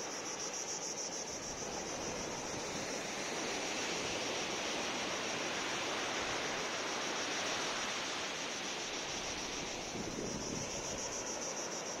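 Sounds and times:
sea waves washing onto beach: 1.3s - 12.0s
wind buffeting microphone: 9.8s - 10.9s.

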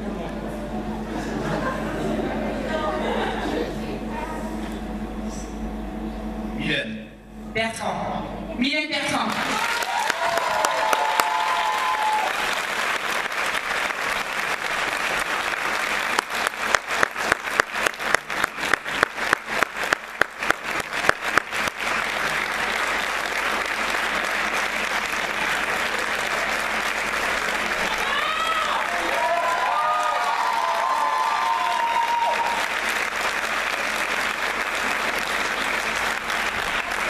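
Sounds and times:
audience applauding: 9.2s - 37.0s
close loud hand clapping: 9.3s - 37.0s.

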